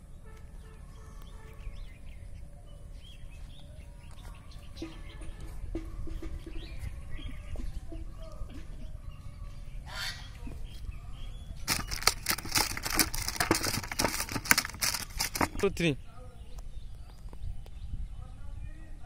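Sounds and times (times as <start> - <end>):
loud crackling rustle: 11.6 - 15.9.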